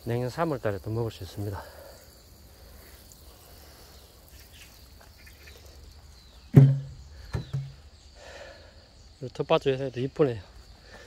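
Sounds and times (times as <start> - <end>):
water spraying from hose: 0.0 - 6.2
crickets chirring: 0.0 - 11.0
knock: 6.6 - 7.7.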